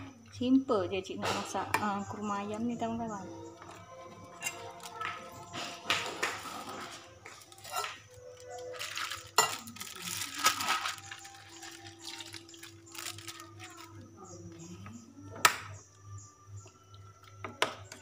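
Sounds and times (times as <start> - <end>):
faint background music: 0.0 - 18.0
water splashing: 8.9 - 13.5.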